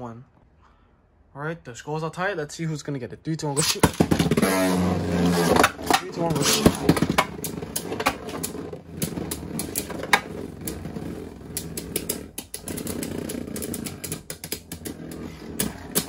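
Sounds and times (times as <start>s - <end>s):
spinning tops whirring: 3.6s - 16.0s.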